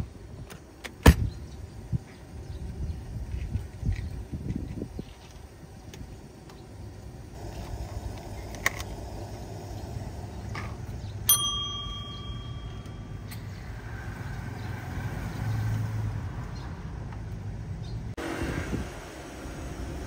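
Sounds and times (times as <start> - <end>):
counter service bell ringing: 11.3 - 13.3.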